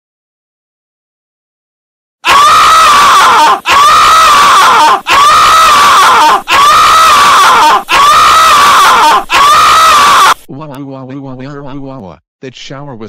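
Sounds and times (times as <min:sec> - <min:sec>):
cartoon character screaming in pain: 0:02.2 - 0:10.5.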